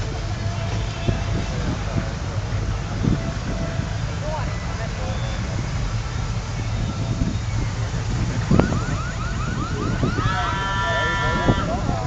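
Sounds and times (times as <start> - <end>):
car engines passing: 0.0 - 12.0
electronic siren chirps: 6.6 - 11.5.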